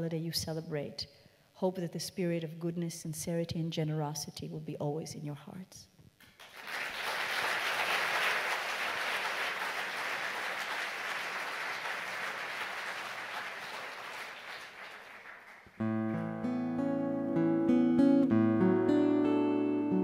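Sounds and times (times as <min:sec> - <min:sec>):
audience applauding: 0:06.3 - 0:15.8
acoustic guitar picking and strumming: 0:15.8 - 0:20.0.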